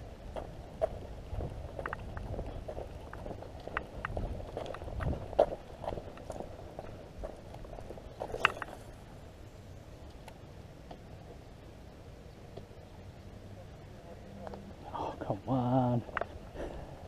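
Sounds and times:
footsteps on concrete: 0:00.3 - 0:08.3.

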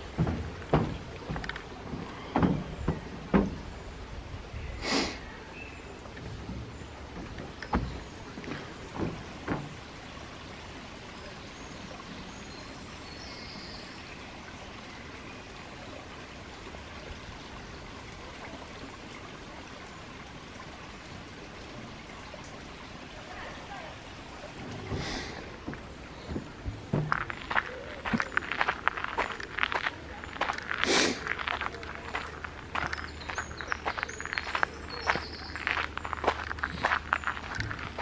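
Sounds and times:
soft thuds: 0:00.0 - 0:03.8, 0:06.2 - 0:09.9, 0:24.7 - 0:28.3
stream trickling over stones: 0:00.0 - 0:38.0.

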